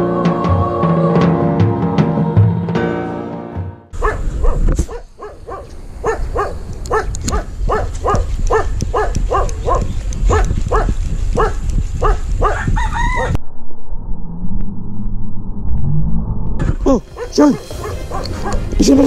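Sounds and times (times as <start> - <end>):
dog barking: 4.0 - 12.7, 17.2 - 18.7
steady low rumble: 4.0 - 19.0.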